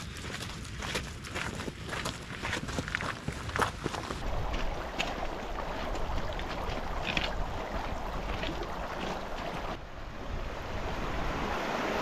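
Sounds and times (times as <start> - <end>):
footsteps on gravel: 0.0 - 9.8
stream running over stones: 3.1 - 9.9
wind buffeting microphone: 4.0 - 11.6.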